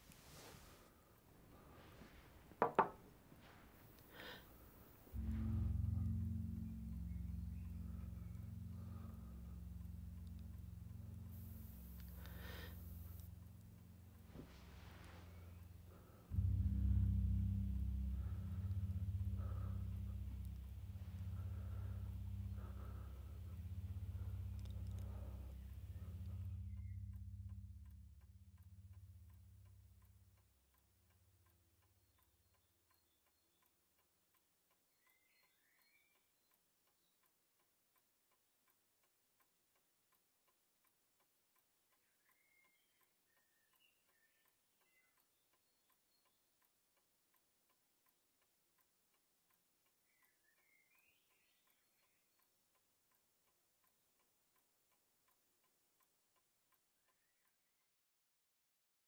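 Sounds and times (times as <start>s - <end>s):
low rumble: 3.3s - 32.0s
alarm clock ticking: 4.0s - 56.5s
faint high chirps: 5.1s - 30.5s, 41.9s - 46.6s, 49.9s - 52.5s.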